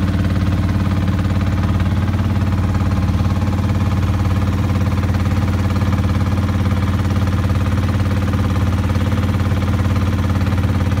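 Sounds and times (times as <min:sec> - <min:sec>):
motorboat engine droning: 0:00.0 - 0:11.0.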